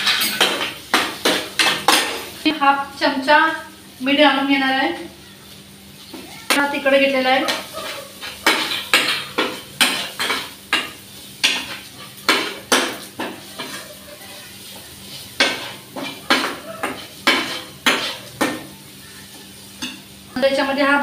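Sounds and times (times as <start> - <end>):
vegetables sizzling in oil: 0.0 - 21.0
spatula scraping frying pan: 6.9 - 18.6.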